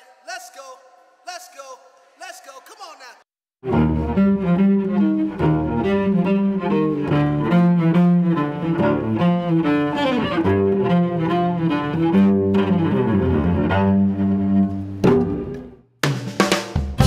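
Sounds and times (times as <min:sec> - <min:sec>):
bowed cello melody: 0:03.6 - 0:15.6.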